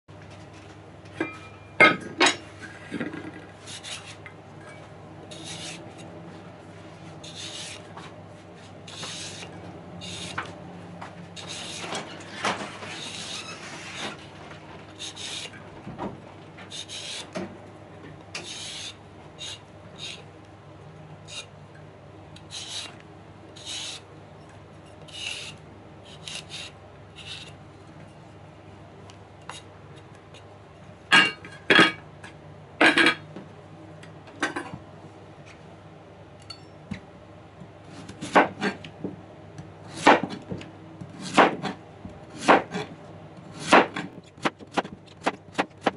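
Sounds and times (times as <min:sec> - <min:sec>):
vegetable peeler scraping: 0:03.6 - 0:04.2, 0:05.3 - 0:06.1, 0:07.2 - 0:08.0, 0:08.6 - 0:10.6, 0:11.4 - 0:12.0, 0:12.9 - 0:14.2, 0:15.0 - 0:15.6, 0:16.7 - 0:17.4, 0:18.4 - 0:20.3, 0:21.2 - 0:21.5, 0:22.4 - 0:23.0, 0:23.6 - 0:24.1, 0:25.0 - 0:27.6.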